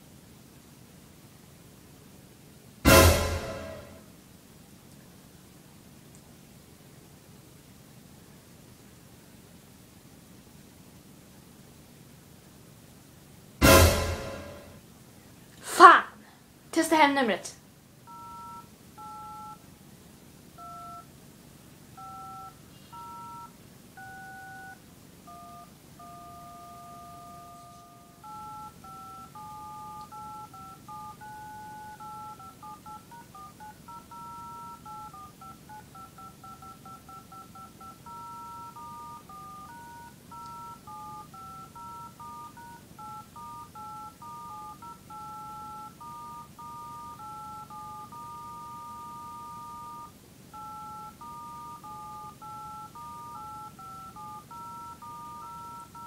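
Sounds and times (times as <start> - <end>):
touch-tone keypad beeps: 18.1 - 19.6, 20.6 - 21.1, 22.0 - 56.0.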